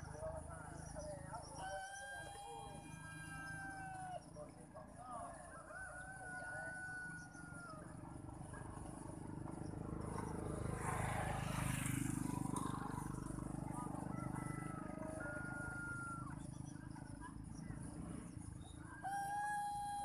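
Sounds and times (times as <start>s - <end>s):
rooster crowing: 1.6s - 4.2s, 5.5s - 7.9s, 13.7s - 16.4s.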